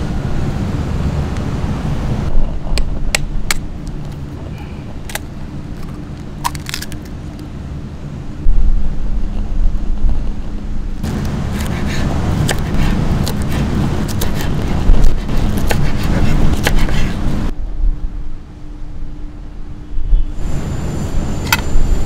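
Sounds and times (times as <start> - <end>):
low rumble: 0.0 - 22.0
dry noodles crackling and snapping: 5.0 - 7.5, 12.3 - 17.4.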